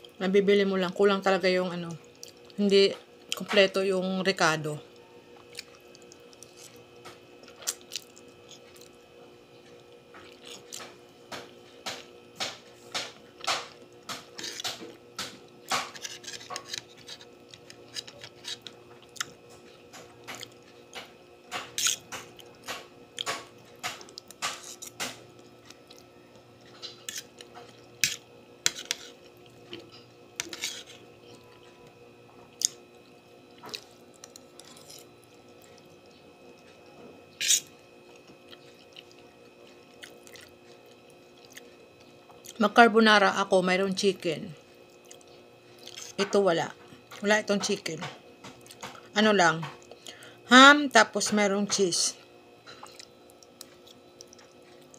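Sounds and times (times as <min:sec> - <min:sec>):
faint hum: 0:00.0 - 0:54.9
wet chewing and slurping: 0:05.4 - 0:09.0, 0:09.6 - 0:12.1, 0:13.4 - 0:31.7, 0:32.5 - 0:42.6, 0:44.9 - 0:46.2, 0:52.6 - 0:54.9.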